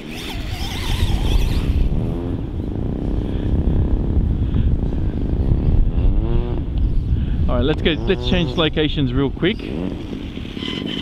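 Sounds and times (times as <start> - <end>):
electric motor whining: 0.0 - 3.2
wind on microphone: 0.0 - 11.0.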